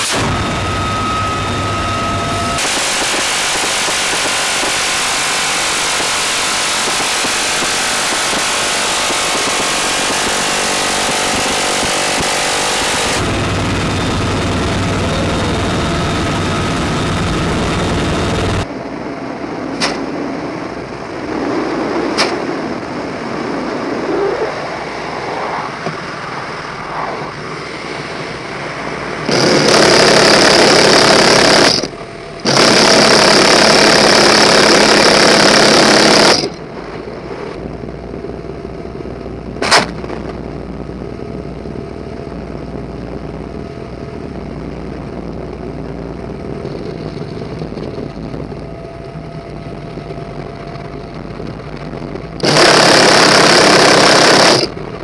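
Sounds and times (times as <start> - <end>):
helicopter rotor and turbine noise: 0.0 - 55.0
minigun firing bursts: 2.6 - 18.7, 29.2 - 36.6, 52.4 - 54.8
sharp snap: 19.8 - 20.1, 22.2 - 22.4, 39.6 - 40.1.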